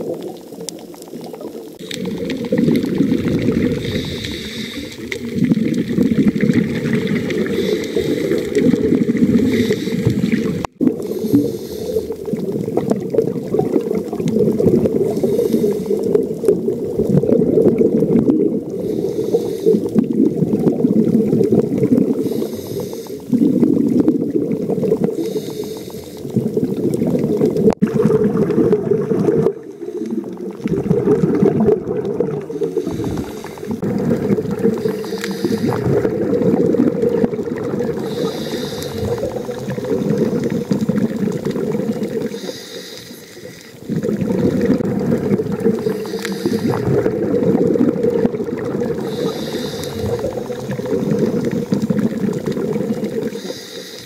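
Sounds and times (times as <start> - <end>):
low underwater rumble: 0.0 - 15.6, 26.3 - 42.3, 43.8 - 53.4
diver's exhaled bubbles hissing: 0.0 - 54.0.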